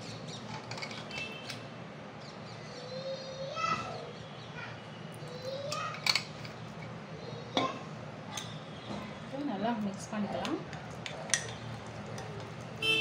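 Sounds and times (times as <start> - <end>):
birds chirping and calling: 2.2 - 6.2.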